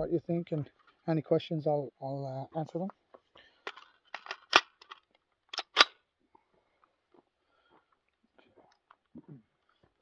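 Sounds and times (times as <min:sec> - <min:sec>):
rifle loading clicks: 0:03.7 - 0:06.0
sharp rifle action clacks: 0:03.7 - 0:06.0.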